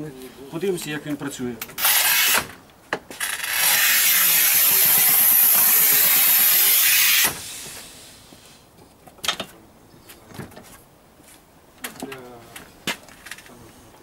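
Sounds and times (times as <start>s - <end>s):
tile cutter scoring wheel hissing: 3.4s - 7.9s.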